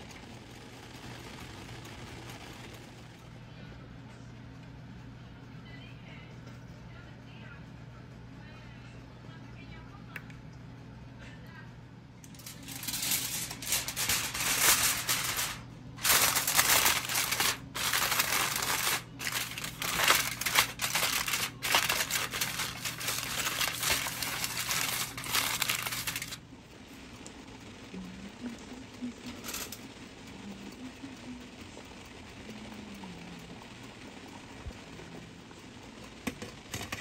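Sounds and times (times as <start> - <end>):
faint hum: 0.0 - 37.0
aluminium foil crinkling: 12.2 - 26.4.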